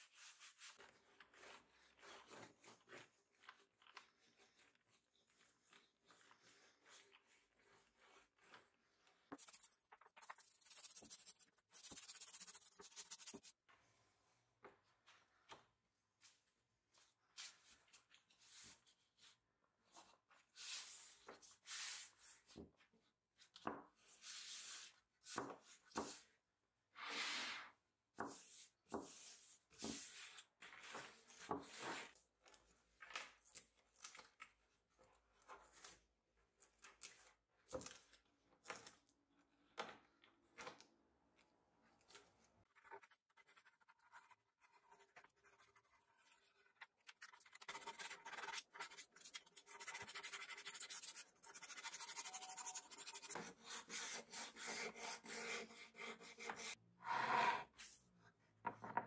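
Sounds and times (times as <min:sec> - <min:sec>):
hands rubbing wood veneer: 0:09.4 - 0:13.5.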